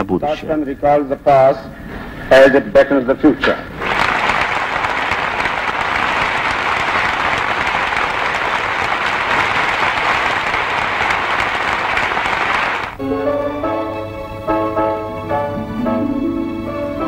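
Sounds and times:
crowd applauding: 0:03.7 - 0:13.0
music: 0:13.0 - 0:17.0.

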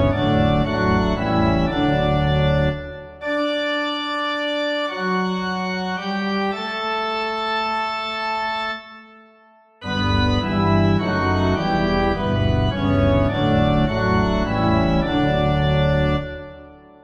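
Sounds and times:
organ playing hymn: 0:00.0 - 0:17.0.

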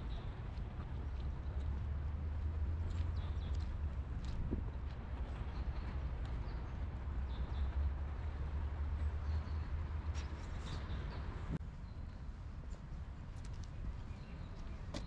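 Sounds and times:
footsteps on wet paving: 0:00.5 - 0:06.4.

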